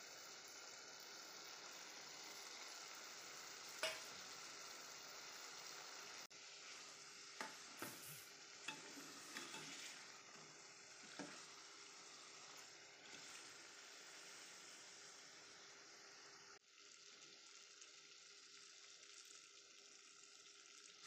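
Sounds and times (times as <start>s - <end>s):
chicken sizzling in pot: 0.0s - 21.0s.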